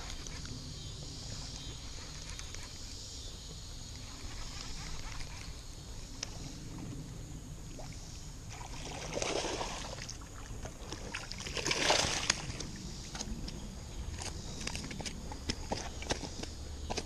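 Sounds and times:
fish thrashing and splashing: 8.5 - 13.3.

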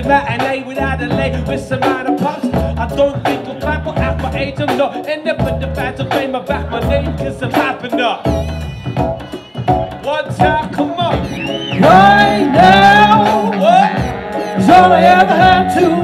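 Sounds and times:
live band playing bass-heavy groove: 0.0 - 16.0
melodic lines: 0.0 - 16.0.

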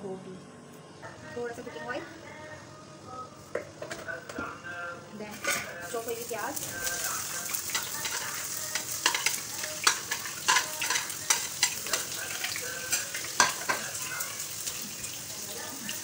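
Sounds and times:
onions sizzling in oil: 5.8 - 16.0
metal spoon scraping pan: 7.5 - 13.9.

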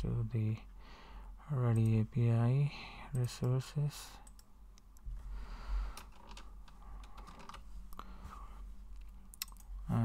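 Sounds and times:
faint low hum: 0.0 - 10.0.

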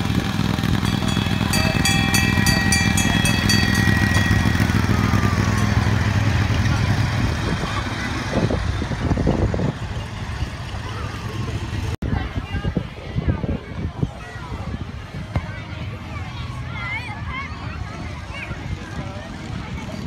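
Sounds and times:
small road train engine: 0.0 - 12.0
high ringing with fast rattle: 0.3 - 6.8.

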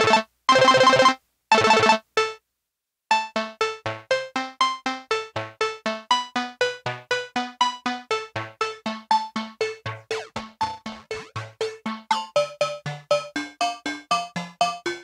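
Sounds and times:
plucky synth arpeggio: 7.6 - 15.0.

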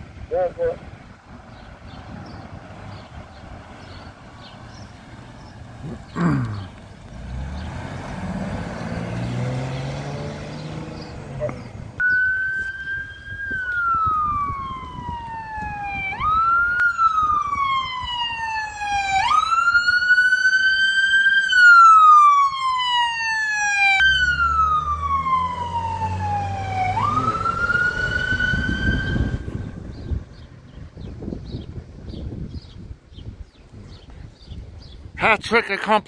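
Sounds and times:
ambulance siren wailing: 11.3 - 30.2.

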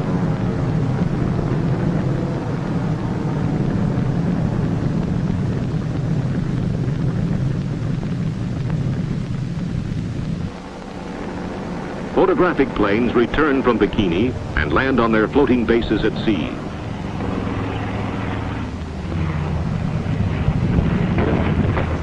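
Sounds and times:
propeller airplane engines rumbling: 0.0 - 22.0.

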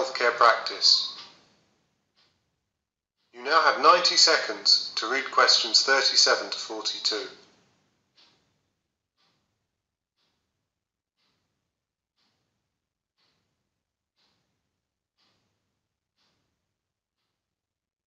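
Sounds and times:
faint soft ticks: 1.1 - 2.4, 6.9 - 8.6, 9.2 - 9.4, 10.2 - 10.4, 11.2 - 11.5, 12.2 - 12.4, 13.2 - 13.4, 14.2 - 14.4, 15.2 - 15.4, 16.2 - 16.4.

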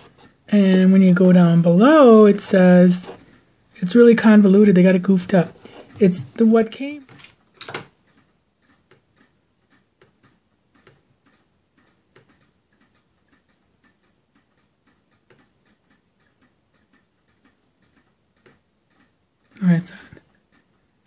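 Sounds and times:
computer mouse clicking: 5.2 - 21.0.

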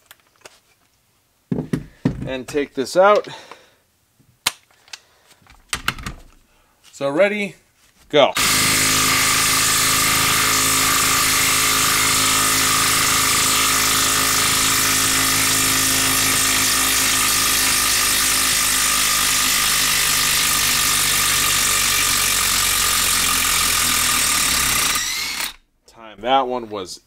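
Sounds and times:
impact wrench hammering: 8.4 - 25.6.

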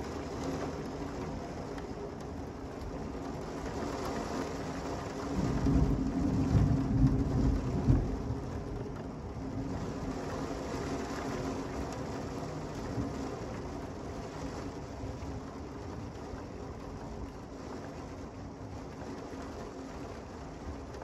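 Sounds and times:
steady rain falling: 0.0 - 21.0
thunder rumbling: 5.3 - 13.5.

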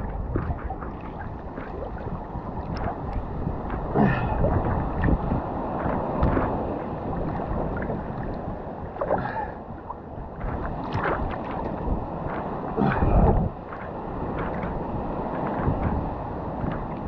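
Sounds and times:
deep rumble: 0.0 - 13.6
seawater sloshing: 0.0 - 17.0
small waves slapping: 0.0 - 17.0.

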